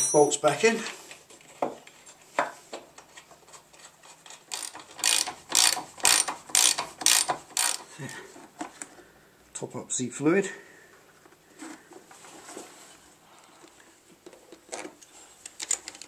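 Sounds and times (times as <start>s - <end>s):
scattered clicks and knocks: 1.5s - 7.9s
socket ratchet clicking: 4.5s - 7.9s.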